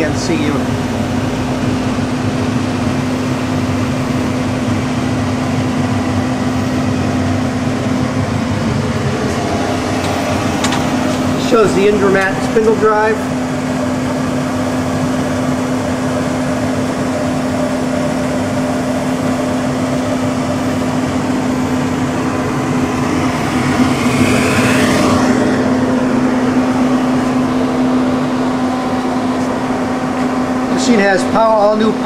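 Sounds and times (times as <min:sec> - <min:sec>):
milling machine electrical hum: 0:00.0 - 0:32.0.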